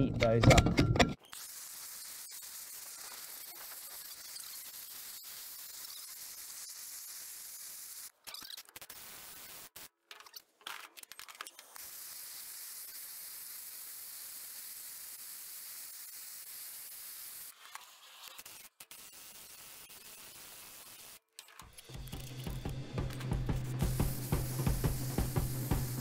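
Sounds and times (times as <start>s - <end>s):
gas blowtorch hissing: 1.3s - 8.1s, 11.7s - 21.2s, 21.8s - 26.0s.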